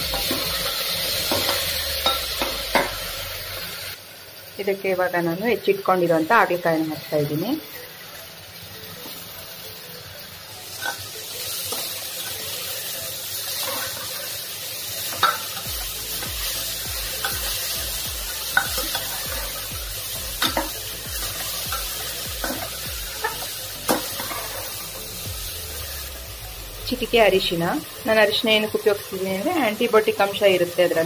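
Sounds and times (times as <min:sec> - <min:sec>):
vegetables sizzling in oil: 0:00.0 - 0:31.0.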